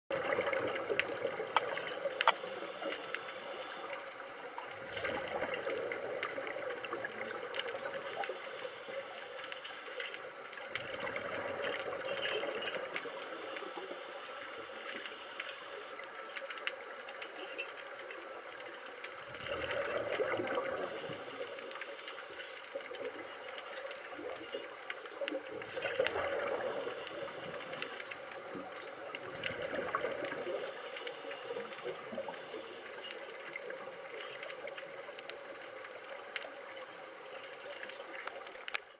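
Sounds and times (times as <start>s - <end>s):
exhaled air bubbling underwater: 0.1s - 38.9s.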